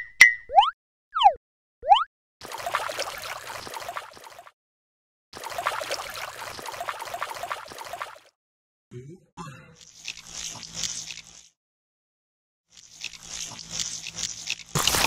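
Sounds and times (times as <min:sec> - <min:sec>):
water gushing from a pipe: 0:02.4 - 0:04.5, 0:05.4 - 0:08.3.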